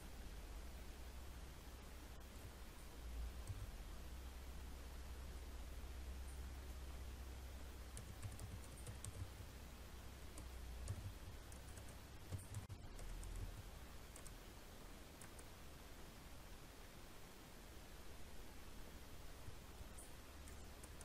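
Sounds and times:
low steady hum: 0:00.0 - 0:21.0
keyboard typing: 0:03.4 - 0:03.7, 0:07.9 - 0:09.5, 0:10.3 - 0:14.4, 0:15.1 - 0:15.6, 0:20.0 - 0:21.0.

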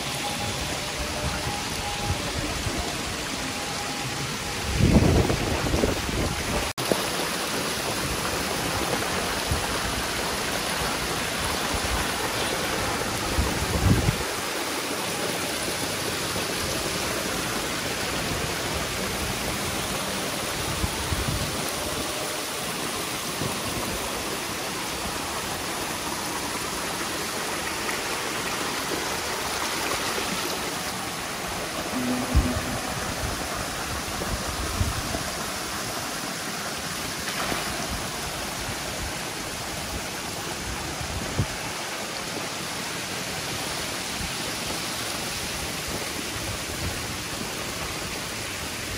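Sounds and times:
water pouring from pipes: 0:01.4 - 0:41.8.

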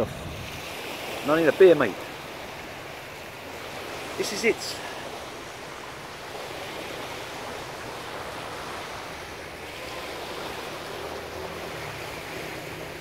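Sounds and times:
small waves washing onto beach: 0:00.0 - 0:13.0.

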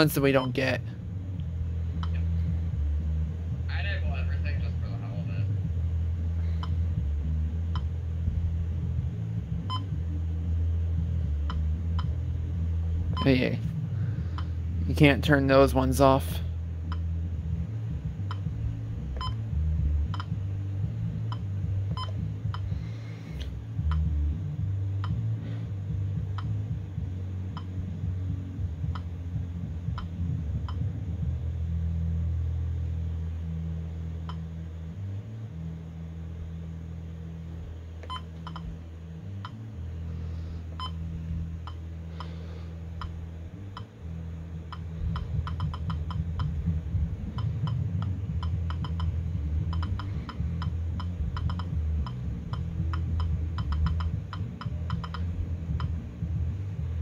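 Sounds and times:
low hum: 0:00.0 - 0:57.0.

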